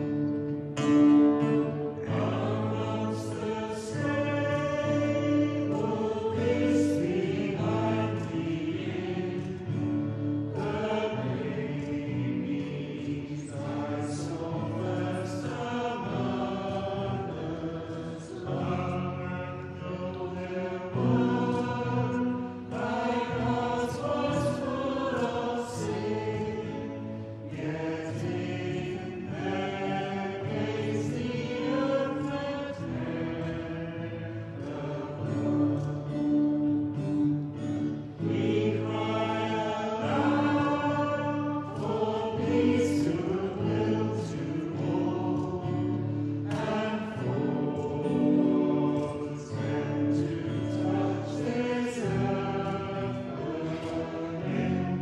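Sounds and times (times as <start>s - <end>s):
guitar accompaniment: 0.0s - 55.0s
people singing a hymn: 0.0s - 55.0s.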